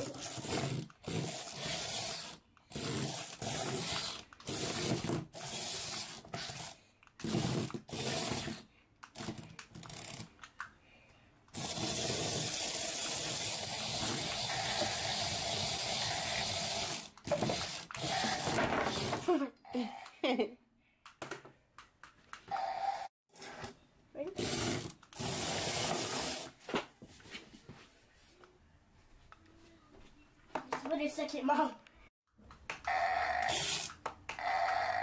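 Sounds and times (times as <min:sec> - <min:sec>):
toy motor whirring: 0:00.0 - 0:10.5, 0:11.5 - 0:19.3, 0:22.4 - 0:26.5, 0:32.9 - 0:35.0.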